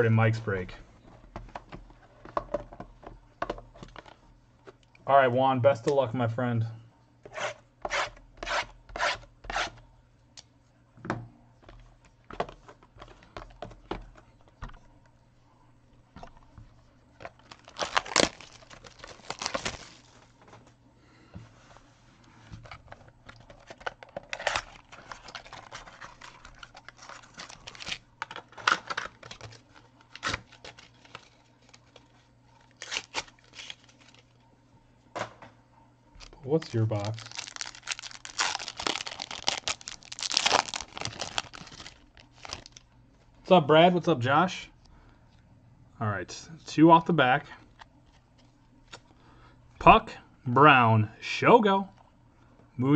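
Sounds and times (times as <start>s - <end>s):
wrappers tearing and crinkling: 17.2s - 20.3s, 23.4s - 34.3s, 36.2s - 42.8s.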